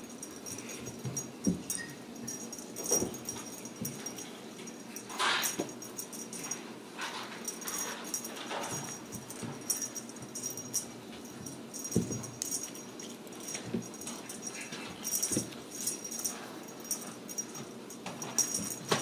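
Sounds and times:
small bell jingling: 0.0 - 19.0
kittens pouncing thumps: 2.8 - 4.2, 11.4 - 12.6, 13.5 - 16.0.

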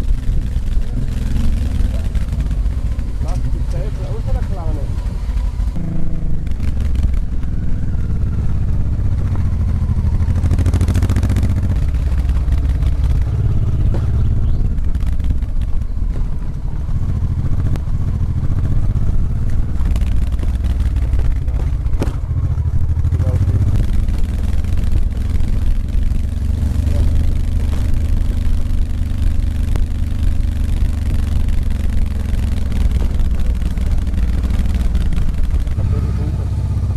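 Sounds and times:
motorcycle engine rumble: 0.0 - 36.9
knocks and clatter: 19.4 - 36.0.

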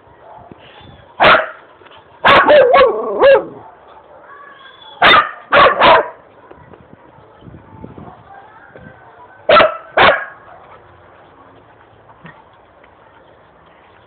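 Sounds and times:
dog barking: 1.2 - 1.6, 2.2 - 4.3, 5.0 - 6.2, 9.5 - 10.6.

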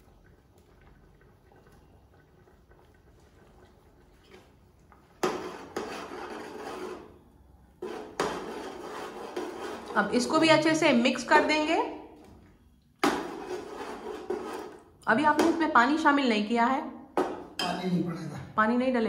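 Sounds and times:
stirring and scraping in a pot: 0.6 - 11.6, 13.0 - 15.6
paste scraped off a plate: 5.2 - 7.2, 7.8 - 10.0, 13.0 - 14.9.

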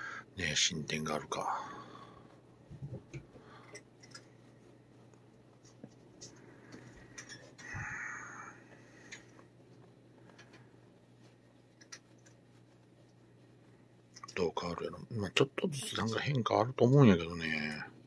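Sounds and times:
low steady hum: 0.0 - 18.0
breathy rush of noise: 7.6 - 9.4.

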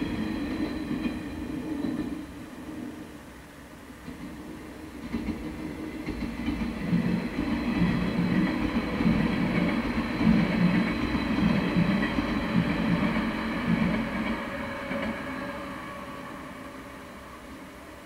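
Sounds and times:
train wheels on rails: 0.0 - 18.0
faint steady high tone: 9.3 - 18.0.

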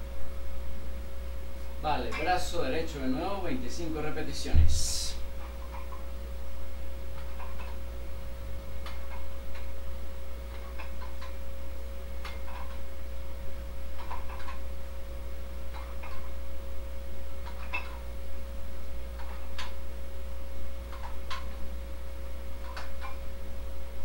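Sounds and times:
steady low hum: 0.0 - 24.0
dumbbell clicks: 14.0 - 14.6, 22.6 - 23.2.

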